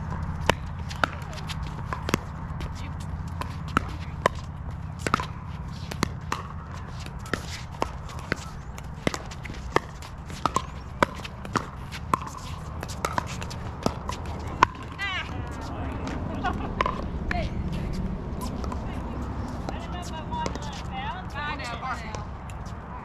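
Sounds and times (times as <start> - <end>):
steady low rumble: 0.0 - 23.0
paddles hitting plastic ball: 3.3 - 15.0.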